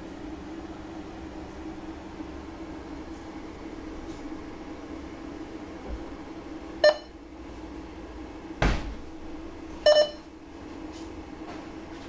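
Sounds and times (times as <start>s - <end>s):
short electronic beeps: 6.8s - 7.1s, 9.9s - 10.3s
dull thump: 8.6s - 9.0s.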